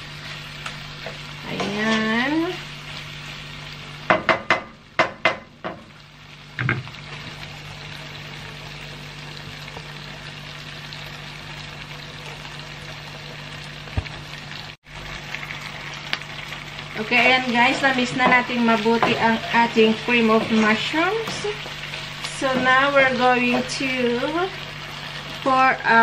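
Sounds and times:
food sizzling: 0.0 - 26.0
wooden spoon scraping a pan: 17.6 - 23.8.

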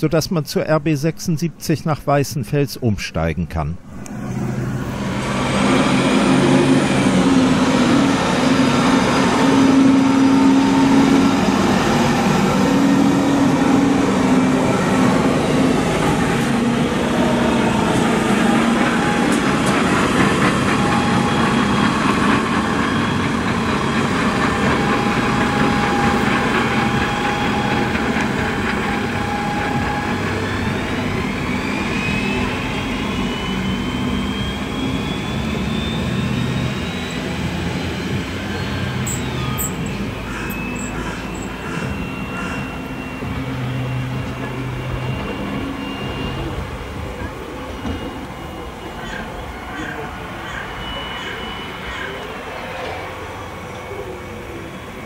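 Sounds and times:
diesel railcar engine passing: 3.8 - 55.0
rising whine: 3.8 - 55.0.

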